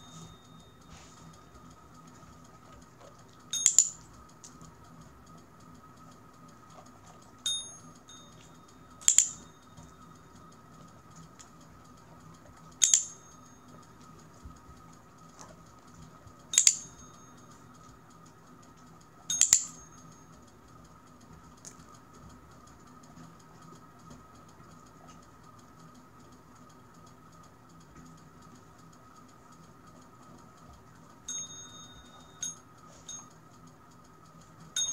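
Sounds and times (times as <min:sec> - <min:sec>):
desk call bell ringing: 0:03.5 - 0:04.0, 0:07.5 - 0:09.7, 0:31.3 - 0:33.3.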